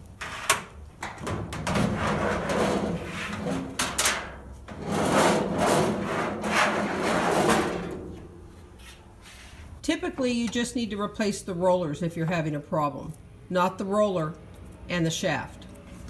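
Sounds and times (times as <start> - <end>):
dryer drum scraping against cabinet: 0.2 - 8.9.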